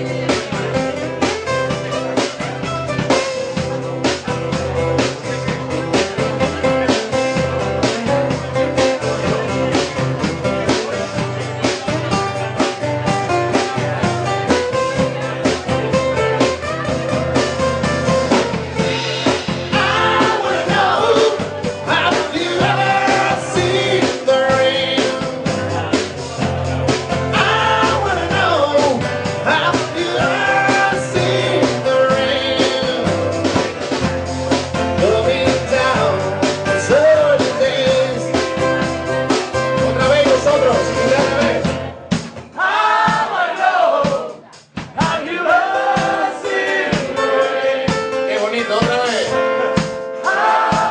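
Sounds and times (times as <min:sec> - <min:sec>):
man singing: 0:00.0 - 0:02.8, 0:19.3 - 0:41.9
band with acoustic guitars and drums: 0:00.0 - 0:50.9.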